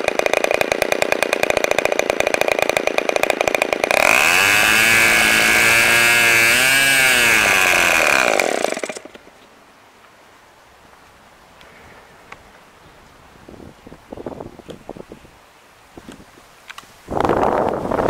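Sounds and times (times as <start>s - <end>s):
model engine whining: 0.0s - 9.2s.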